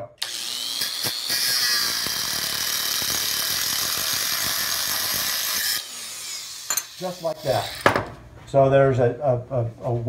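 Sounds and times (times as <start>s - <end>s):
angle grinder cutting steel: 0.2s - 8.0s.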